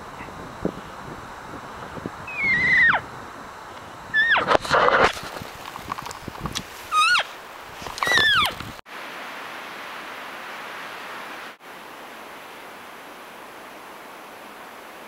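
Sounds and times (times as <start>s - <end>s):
wind hiss: 0.0s - 15.0s
high whistling animal call: 2.2s - 3.1s, 4.1s - 4.5s, 6.9s - 7.3s, 8.0s - 8.6s.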